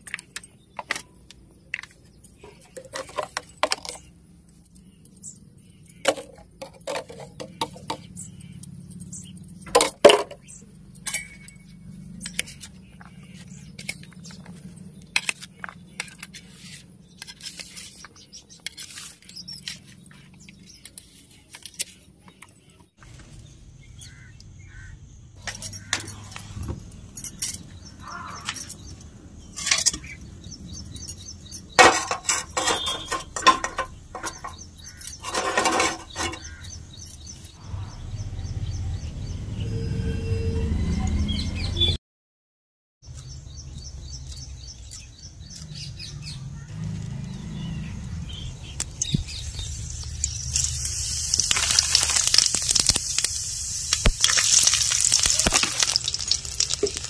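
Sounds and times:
metal cookware clanking: 0:09.6 - 0:12.6, 0:25.4 - 0:37.3, 0:54.2 - 0:57.0.

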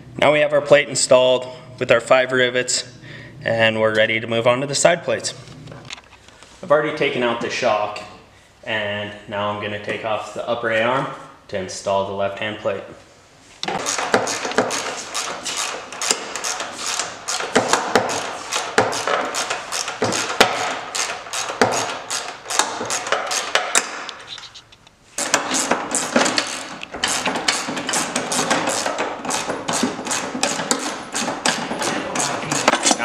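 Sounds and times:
ratchet wrench clicking: 0:13.8 - 0:23.9, 0:25.2 - 0:33.0.

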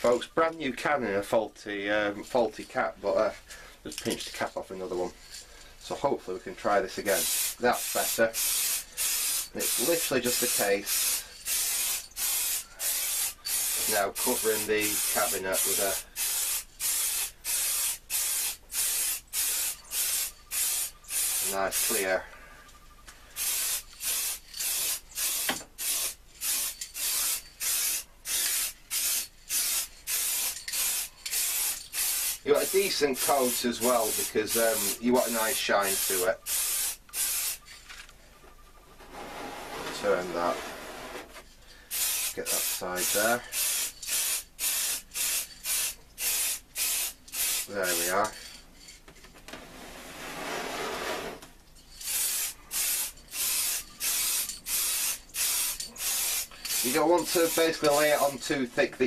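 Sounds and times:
aerosol can spraying bursts: 0:07.1 - 0:22.1, 0:23.4 - 0:37.6, 0:41.9 - 0:48.2, 0:52.0 - 0:58.4
wooden cabinet scraping on cardboard: 0:38.9 - 0:41.4, 0:49.5 - 0:51.4.

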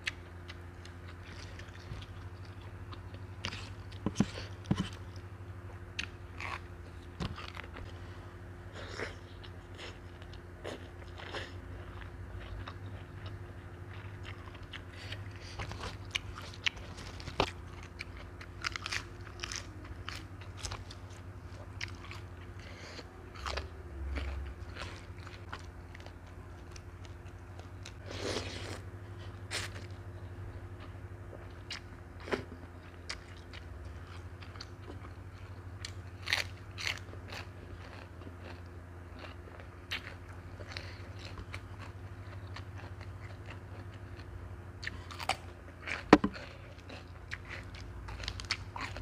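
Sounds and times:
crunching lettuce: 0:08.8 - 0:30.1, 0:31.4 - 0:49.0.

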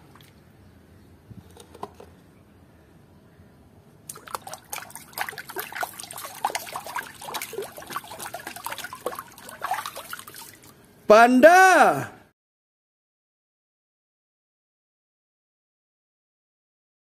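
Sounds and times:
water sloshing and splashing: 0:00.0 - 0:00.4, 0:04.1 - 0:10.9.

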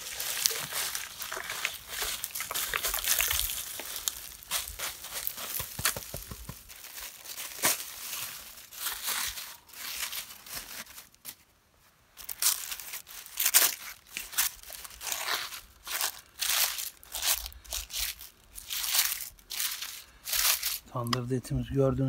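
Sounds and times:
clay crust cracking and crumbling: 0:00.0 - 0:11.4.

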